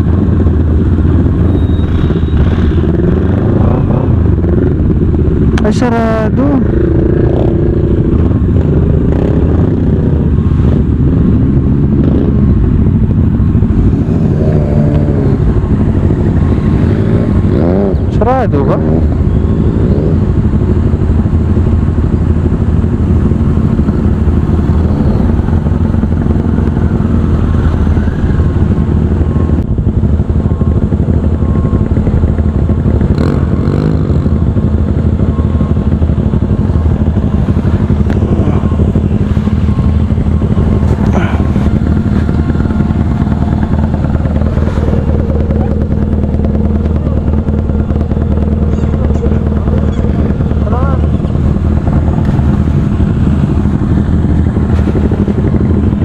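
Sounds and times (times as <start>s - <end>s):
motorcycle engine running steadily: 0.0s - 56.0s.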